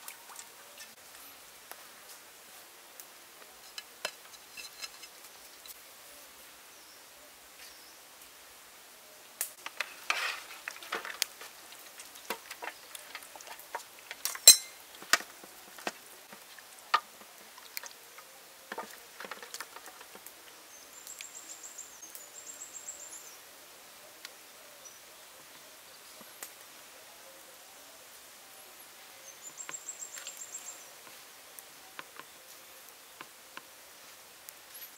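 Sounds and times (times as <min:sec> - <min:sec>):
clinks in steel trays: 0:14.1 - 0:15.3.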